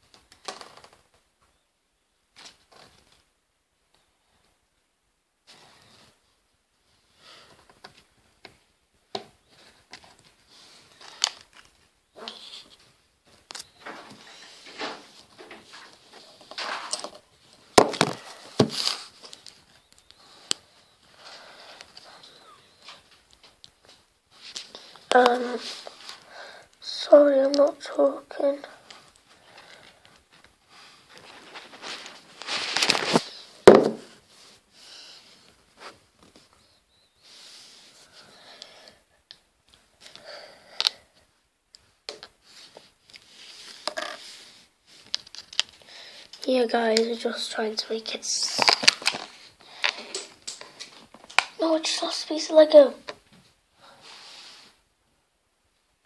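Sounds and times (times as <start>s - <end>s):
soft rustling: 5.4s - 38.6s, 41.1s - 54.9s
plastic pieces clicking: 48.4s - 51.6s.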